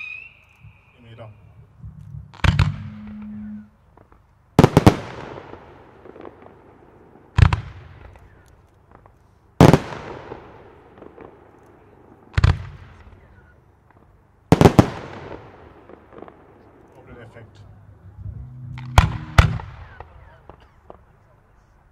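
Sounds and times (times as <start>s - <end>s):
firework shells bursting: 0.0s - 17.1s.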